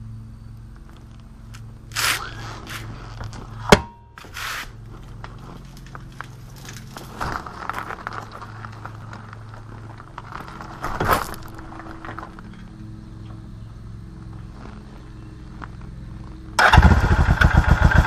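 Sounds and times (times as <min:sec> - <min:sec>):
rustling and scraping: 0:00.7 - 0:13.4, 0:14.1 - 0:16.5
motorcycle engine idling: 0:12.5 - 0:18.0.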